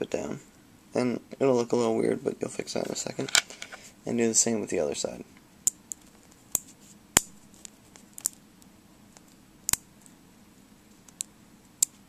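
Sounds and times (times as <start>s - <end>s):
magnets clicking together: 9.2s - 10.1s.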